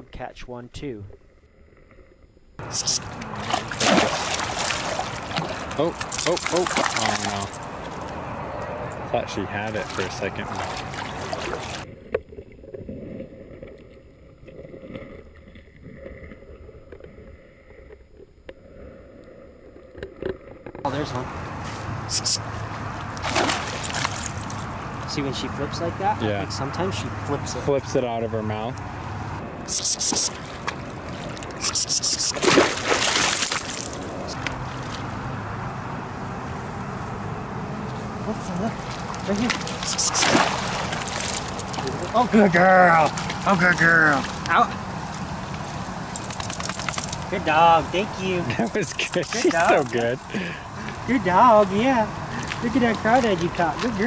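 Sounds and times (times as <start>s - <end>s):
water splashing in a creek: 2.6s - 15.2s, 23.0s - 25.1s, 29.7s - 35.6s, 37.8s - 54.0s
dog splashing in water: 2.7s - 8.2s, 9.6s - 11.9s, 23.2s - 24.8s, 30.0s - 35.1s, 38.5s - 42.2s.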